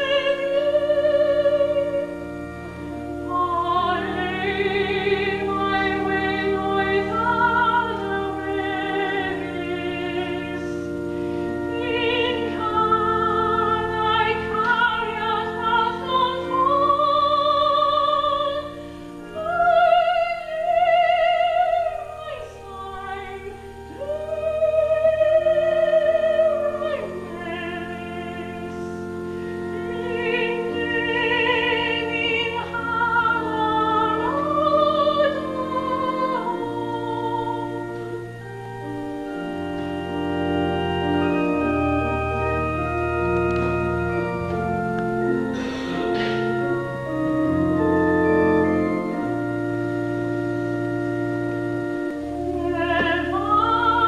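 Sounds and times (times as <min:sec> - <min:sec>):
woman singing classical song: 0:00.0 - 0:42.2, 0:44.5 - 0:54.0
sustained keyboard chords: 0:00.0 - 0:54.0.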